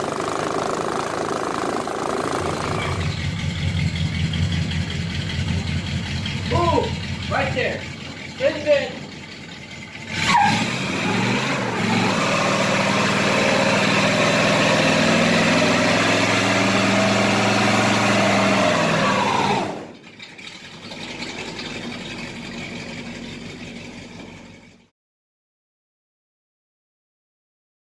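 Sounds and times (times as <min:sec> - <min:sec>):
pickup truck engine revving: 0:00.0 - 0:20.0.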